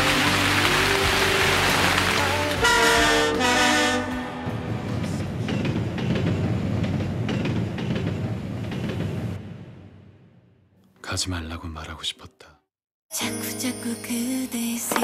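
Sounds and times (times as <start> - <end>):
horn-like chord: 0.0 - 4.8.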